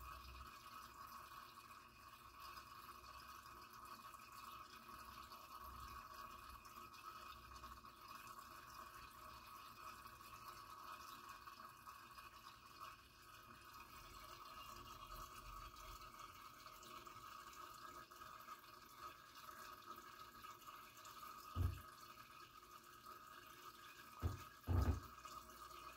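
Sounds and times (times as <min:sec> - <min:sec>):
water trickling and dripping: 0:00.0 - 0:25.9
short dull knocks: 0:21.6 - 0:21.8, 0:24.2 - 0:25.1.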